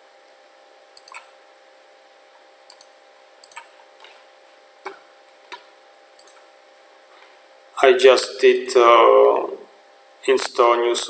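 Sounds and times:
faint steady hum: 0.0 - 11.0
computer mouse clicking: 1.0 - 1.3, 2.7 - 4.2, 4.8 - 6.4.

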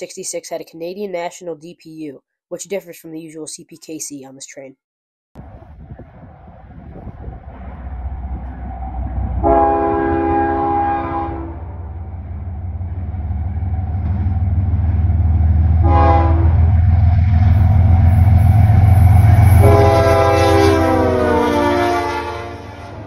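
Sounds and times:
locomotive rumble: 5.4 - 23.0
locomotive horn blasts: 9.4 - 11.9, 15.8 - 16.7, 19.3 - 23.0.

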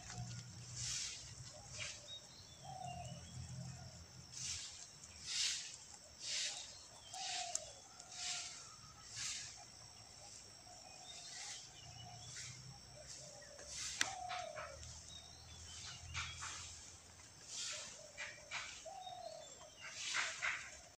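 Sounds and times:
rabbit chewing a leaf: 0.0 - 2.0, 3.0 - 10.2, 19.8 - 20.8
leaf rustling and crackling: 0.0 - 2.1, 4.3 - 9.6
faint bird calls: 0.0 - 21.0.

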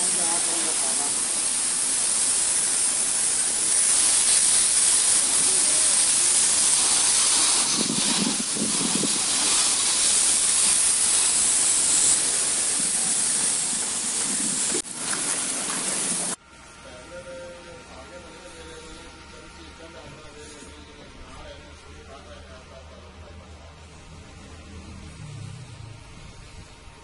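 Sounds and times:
garden hose spraying water: 0.0 - 16.4.

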